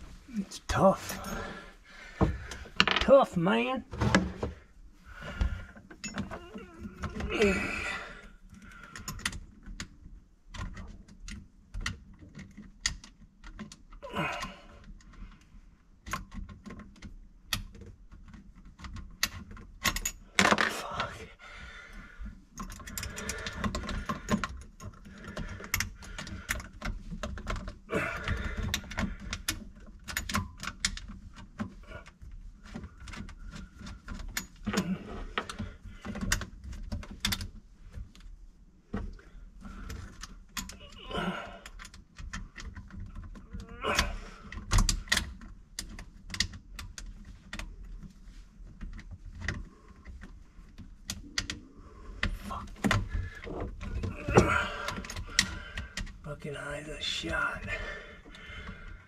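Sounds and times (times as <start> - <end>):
metallic clicks and rattles: 16.0 - 20.7.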